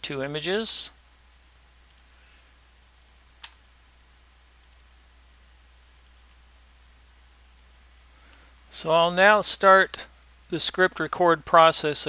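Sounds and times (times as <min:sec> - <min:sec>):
low steady hum: 0:00.0 - 0:12.0
computer mouse clicks: 0:01.9 - 0:02.1, 0:03.0 - 0:03.6, 0:04.6 - 0:04.8, 0:06.0 - 0:06.4, 0:07.6 - 0:07.8.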